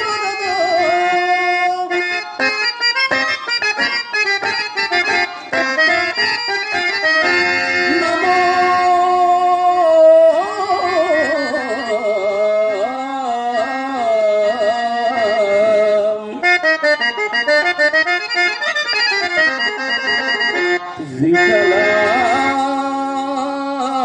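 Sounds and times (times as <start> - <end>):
harmonium: 0.0 - 24.0
person singing: 7.8 - 17.6, 20.8 - 24.0.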